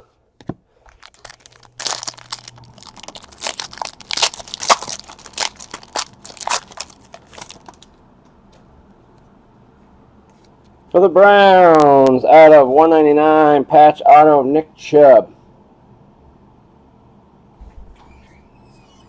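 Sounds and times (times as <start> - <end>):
foil wrapper crinkling: 0.8 - 8.0.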